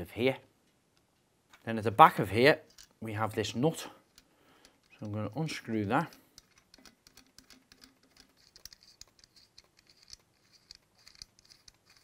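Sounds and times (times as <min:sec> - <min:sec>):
metal nut clicking and scratching: 0:02.4 - 0:12.0.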